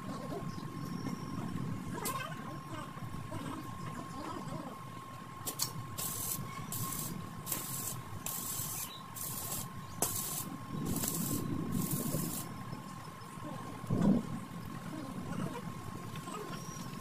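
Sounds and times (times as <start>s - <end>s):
sharp click: 5.4s - 6.1s
short hissing strokes: 5.5s - 12.5s.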